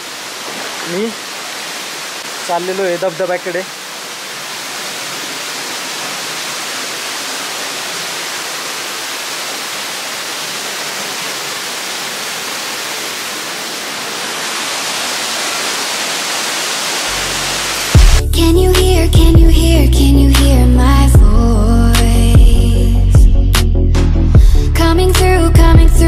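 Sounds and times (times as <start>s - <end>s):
waterfall rushing into pool: 0.0s - 18.2s.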